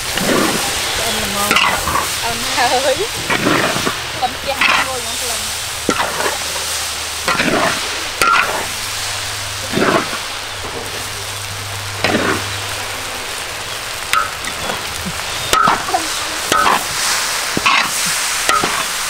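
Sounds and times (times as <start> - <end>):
vegetables sizzling in a wok: 0.0 - 19.0
metal spatula scraping: 0.1 - 2.3, 3.0 - 5.2, 5.8 - 8.7.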